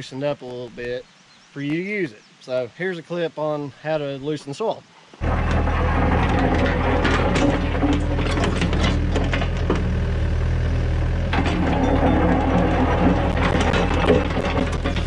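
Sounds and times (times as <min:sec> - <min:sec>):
bucket scraping rocky ground: 0:05.2 - 0:09.9, 0:11.3 - 0:15.0
excavator diesel engine running: 0:05.2 - 0:15.0
stones knocking against steel bucket: 0:11.4 - 0:15.0.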